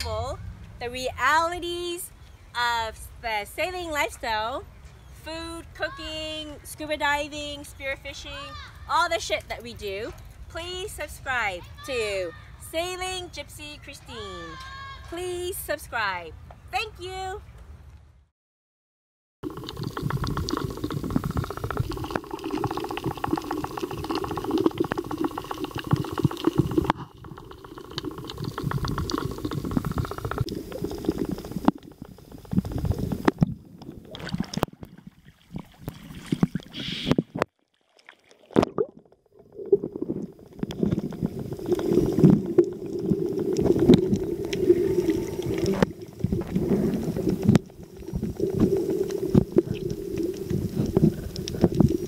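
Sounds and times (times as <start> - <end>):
water gurgling and bubbles: 19.4 - 52.0
muffled underwater rumble: 19.5 - 35.0, 39.5 - 52.0.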